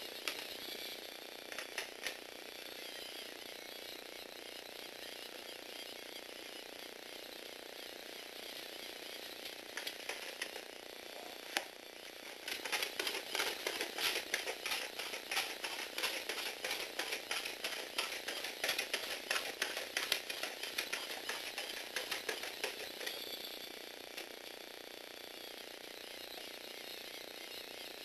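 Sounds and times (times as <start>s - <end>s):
toy robot clattering on wood: 12.3s - 23.3s.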